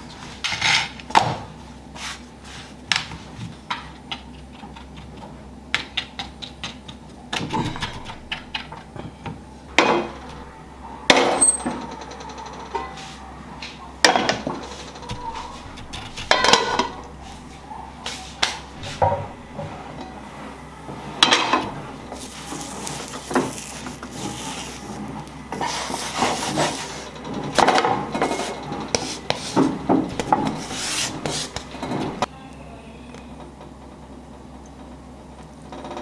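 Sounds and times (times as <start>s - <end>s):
wooden spatula scraping frying pan: 21.2s - 32.2s.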